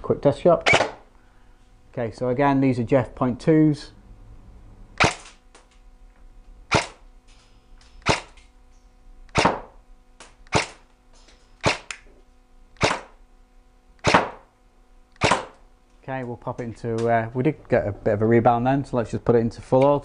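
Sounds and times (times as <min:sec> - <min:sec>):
airsoft gun firing single shots: 0:05.0 - 0:05.4, 0:06.7 - 0:07.0, 0:08.0 - 0:08.4, 0:09.3 - 0:09.8, 0:10.5 - 0:10.8, 0:11.6 - 0:12.0, 0:12.8 - 0:13.2, 0:14.0 - 0:14.5, 0:15.2 - 0:15.6.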